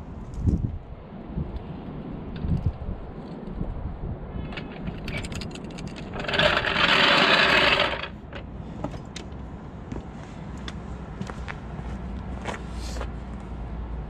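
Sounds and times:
trolley jack rolling on tarmac: 4.4 - 9.0
metal clicks and knocks: 4.5 - 9.4.

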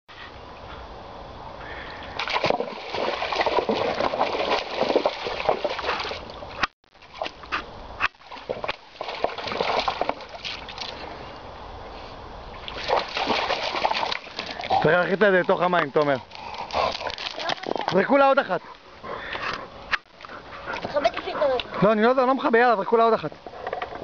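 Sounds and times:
water splashing and sloshing: 1.6 - 19.4.

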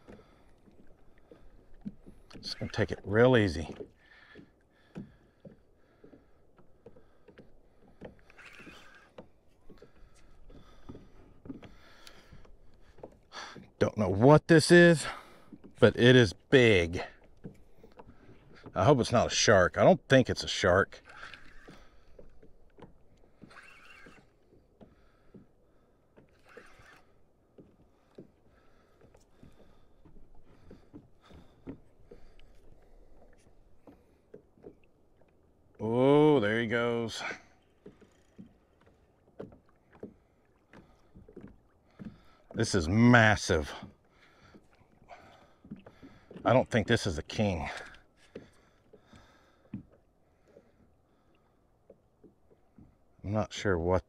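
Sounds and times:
water lapping at hull: 0.0 - 54.0.

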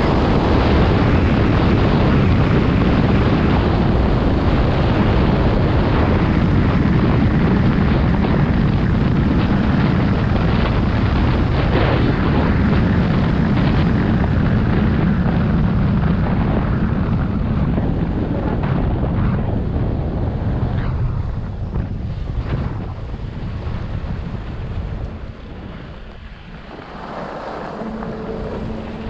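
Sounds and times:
wind buffeting microphone: 0.0 - 29.0
skis scraping on snow: 22.1 - 29.0.

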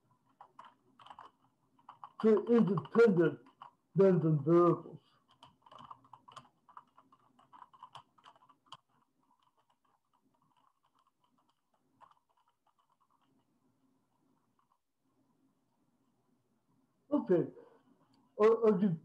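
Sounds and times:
typing on keyboard: 0.0 - 3.8, 5.2 - 13.4.

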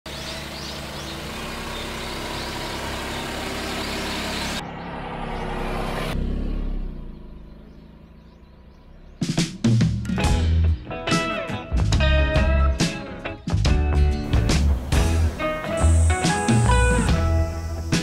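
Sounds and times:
small truck driving past: 0.1 - 9.3
tyre and road noise: 0.1 - 10.6, 13.7 - 18.0.

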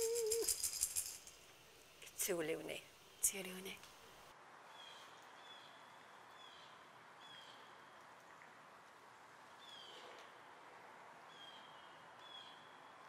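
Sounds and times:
soft steady hiss: 0.0 - 13.0.

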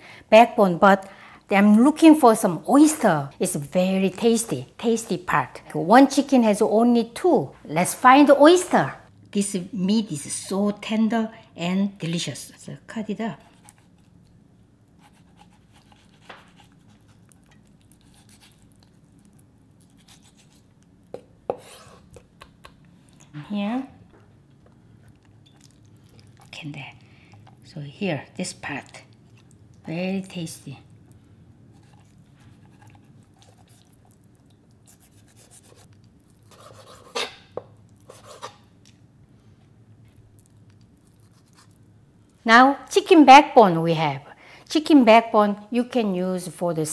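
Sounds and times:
low steady hum: 0.0 - 46.9
knife slicing on a cutting board: 21.5 - 22.2, 36.5 - 37.5
knife slicing raw chicken: 36.5 - 38.6.

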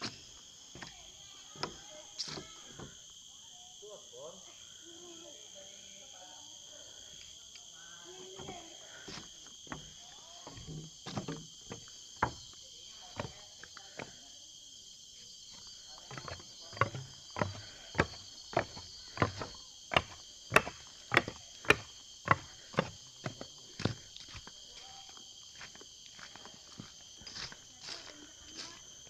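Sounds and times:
high-pitched insect chorus: 0.0 - 29.0
footsteps on forest trail: 8.1 - 14.2, 15.4 - 29.0.

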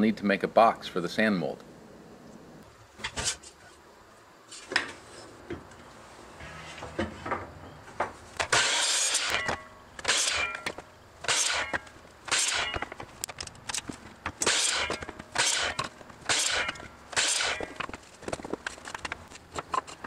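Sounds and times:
wooden board scraping on metal: 6.4 - 7.4, 8.4 - 13.0, 14.4 - 18.0.

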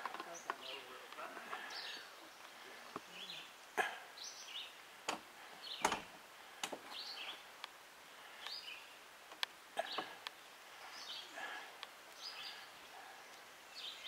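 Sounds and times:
birds chirping: 0.0 - 14.0
sharp clicks and knocks: 5.8 - 6.9.

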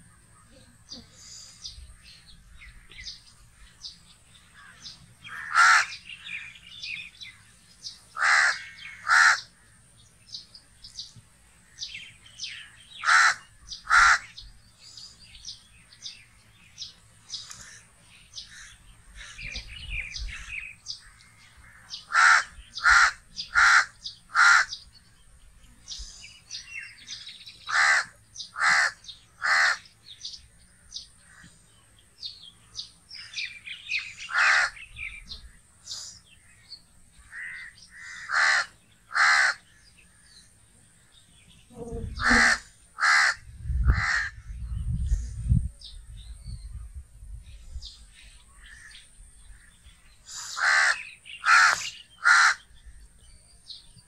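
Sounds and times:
crow cawing: 4.6 - 6.4, 8.1 - 9.6, 12.9 - 14.4, 21.0 - 24.8, 27.7 - 29.9, 34.2 - 34.8, 37.2 - 39.8, 42.2 - 44.4, 50.5 - 52.7
faint short bird calls: 48.5 - 52.8.

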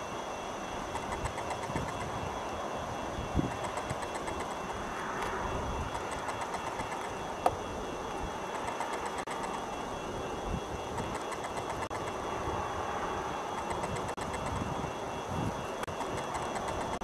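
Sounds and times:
sharp click: 0.9 - 2.1, 3.5 - 7.6, 8.5 - 9.7, 11.0 - 12.2, 13.6 - 14.7, 15.8 - 17.0.

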